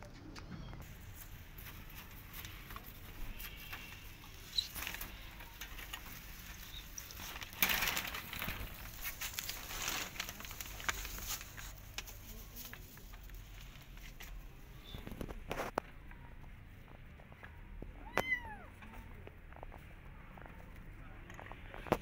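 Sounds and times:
leafy stalks rustling and crackling: 0.8 - 14.9.

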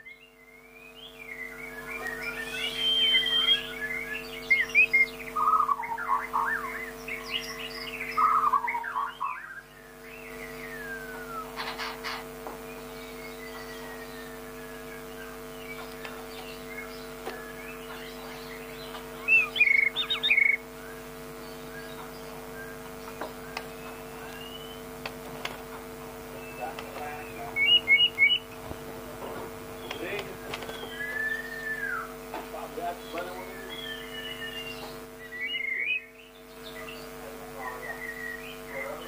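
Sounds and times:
bird singing whistles and chirps: 0.0 - 11.6, 12.7 - 20.6, 23.4 - 24.9, 26.4 - 28.5, 29.8 - 32.2, 33.0 - 37.1, 37.8 - 39.0.

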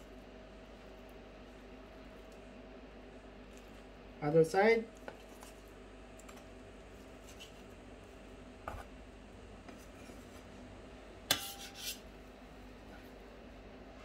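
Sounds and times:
knife cutting and scraping: 11.3 - 12.0.

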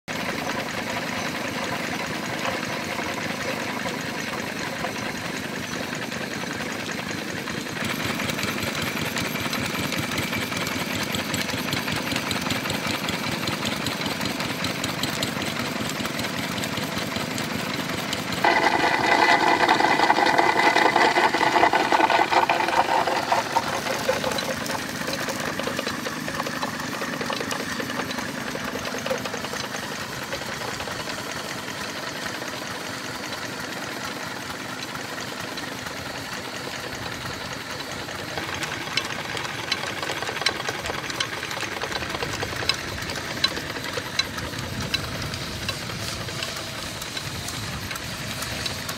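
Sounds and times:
stationary engine running: 0.0 - 48.9
loud noise: 18.4 - 23.8.

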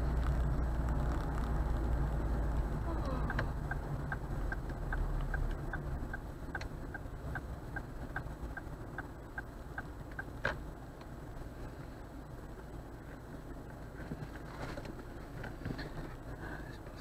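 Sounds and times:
car engine rumble: 0.0 - 17.0
road noise: 0.0 - 17.0
car turn indicator ticking: 2.9 - 11.2.

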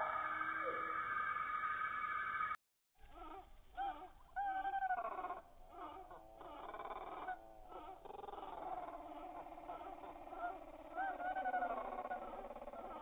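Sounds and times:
slowed-down bird calls: 0.0 - 13.0.

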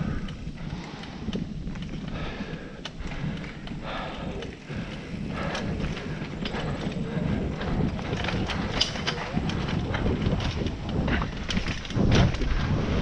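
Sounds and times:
bike rattling and knocking: 0.0 - 13.0
bike tyres rolling over dirt: 0.0 - 13.0
wind on microphone: 0.0 - 13.0.

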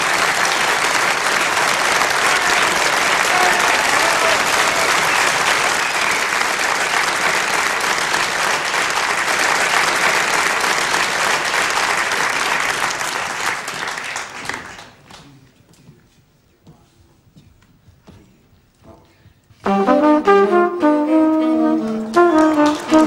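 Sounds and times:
audience applauding: 0.0 - 15.4, 21.1 - 23.0.

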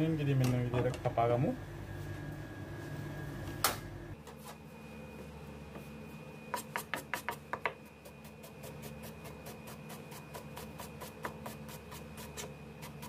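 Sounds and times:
knife chopping on cutting board: 6.6 - 13.0.

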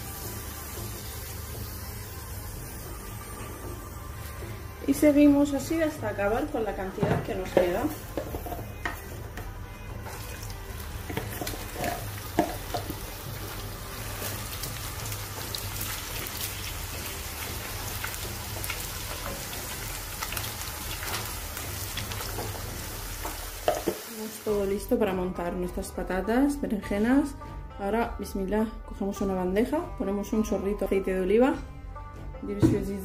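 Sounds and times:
potato slices frying in oil: 10.3 - 24.5.

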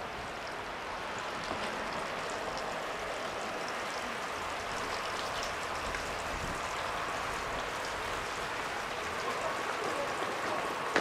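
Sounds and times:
rain and running water: 0.0 - 11.0
water drips ticking: 3.6 - 10.6.

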